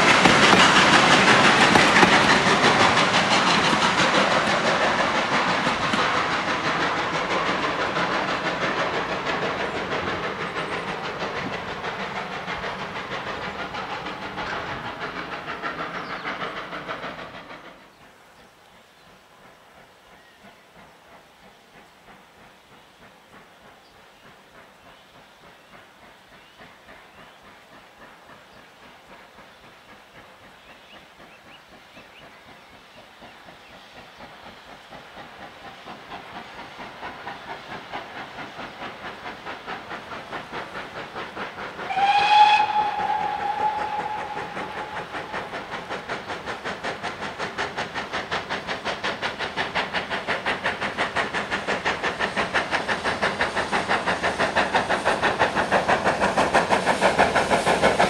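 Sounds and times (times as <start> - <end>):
steam locomotive exhaust beats: 0.0 - 58.0
steam whistle blast: 41.8 - 45.2.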